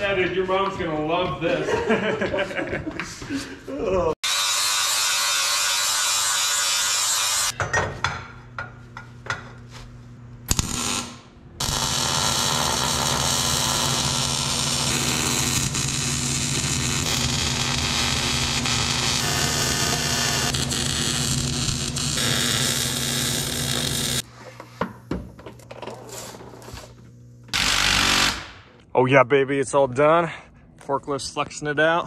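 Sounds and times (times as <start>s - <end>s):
angle grinder grinding steel: 4.2s - 7.6s, 11.6s - 24.2s
welder arc hissing and crackling: 4.3s - 7.6s, 10.5s - 24.3s, 26.8s - 28.5s.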